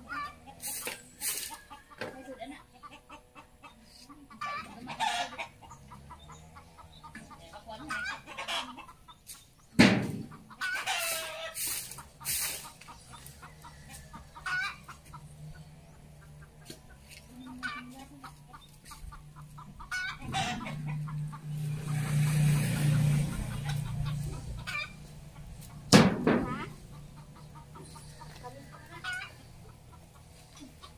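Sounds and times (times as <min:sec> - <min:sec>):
chickens clucking: 0:00.0 - 0:30.9
sharp knock: 0:09.8 - 0:10.3, 0:25.9 - 0:26.6.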